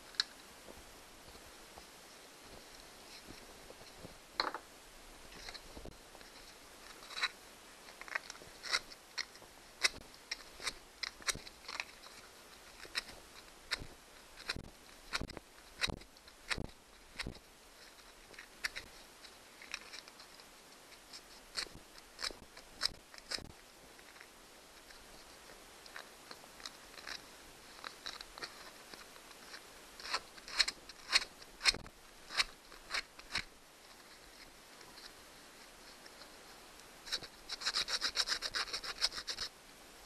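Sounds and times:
wire connectors clicking and tapping: 12.8s - 17.4s.

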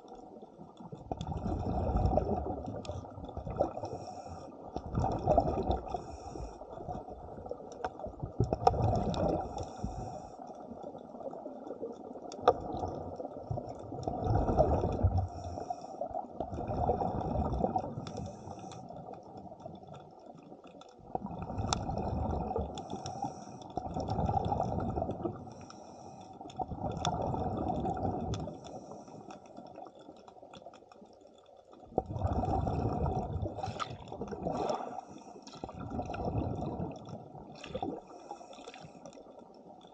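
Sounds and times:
regulator bubbling exhalations: 1.1s - 6.4s, 8.5s - 10.1s, 14.1s - 15.4s, 31.9s - 38.2s.

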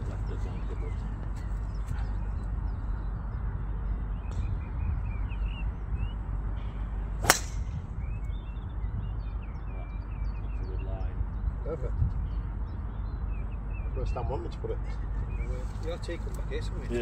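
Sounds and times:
small birds chirping: 0.0s - 17.0s
wind rumble on microphone: 0.0s - 17.0s
golf club striking ball: 7.2s - 7.8s.

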